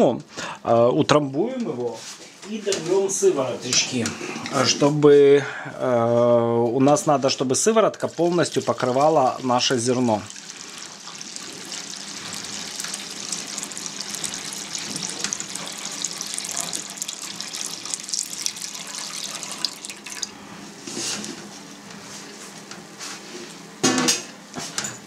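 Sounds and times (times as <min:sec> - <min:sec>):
liquid pouring and splashing: 0:08.5 - 0:20.4.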